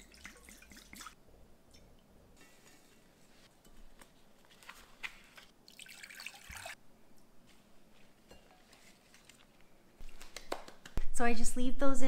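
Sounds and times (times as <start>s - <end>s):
water dripping and sloshing: 0.0s - 2.0s, 5.6s - 6.8s.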